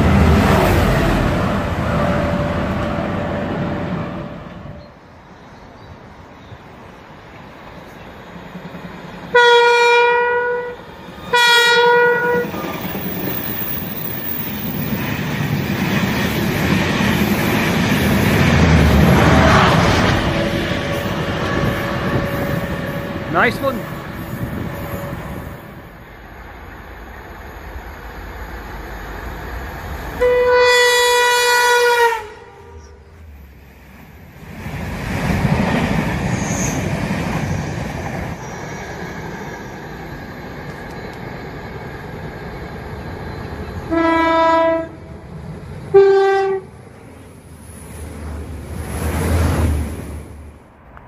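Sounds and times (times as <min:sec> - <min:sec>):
train rumbling past: 0:00.0 - 0:51.0
train horn blasts: 0:09.3 - 0:12.5, 0:30.2 - 0:33.0, 0:43.9 - 0:45.1, 0:45.9 - 0:46.7.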